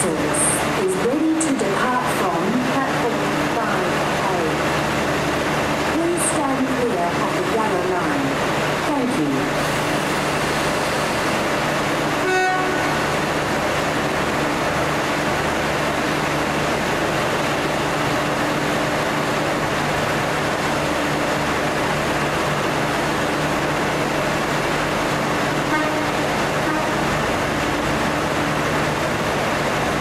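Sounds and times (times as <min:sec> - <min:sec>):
diesel locomotive engine drone: 0:00.0 - 0:30.0
train horn toot: 0:12.2 - 0:13.1, 0:25.7 - 0:27.1.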